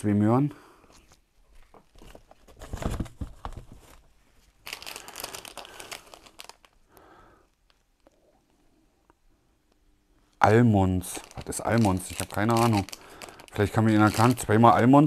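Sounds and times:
paper bag rustling: 1.5s - 6.8s, 11.0s - 14.8s.

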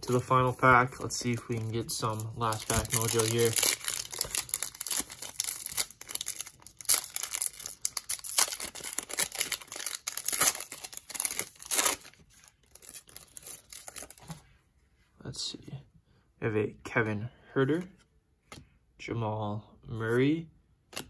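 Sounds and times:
foil pack tearing and crinkling: 2.0s - 14.2s.

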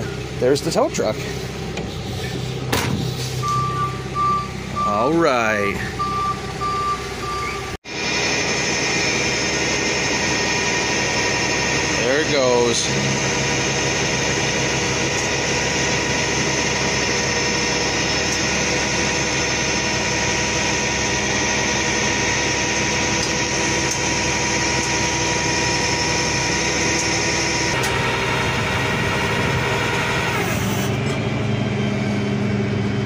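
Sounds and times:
truck engine running: 0.0s - 33.0s
hydraulic winch running: 7.6s - 31.1s.

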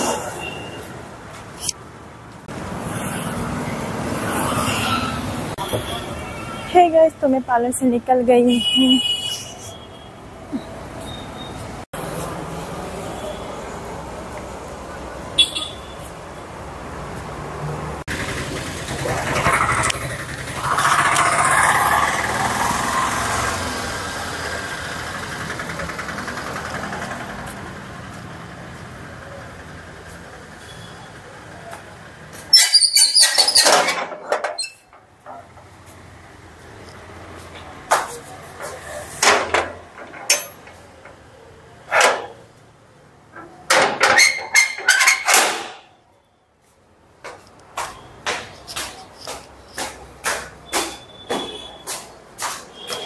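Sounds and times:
vehicle engine running: 18.1s - 28.2s
metallic clacks and knocks: 38.0s - 41.2s, 43.3s - 45.9s
door scuff: 47.3s - 53.0s.

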